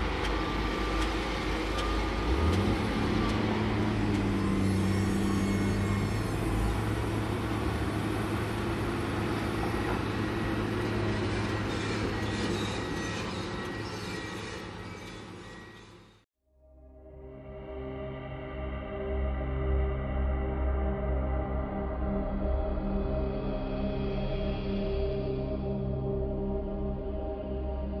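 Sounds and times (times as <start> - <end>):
diesel engine running: 0.0 - 16.1
machinery squeaks: 0.2 - 7.5, 9.7 - 16.2.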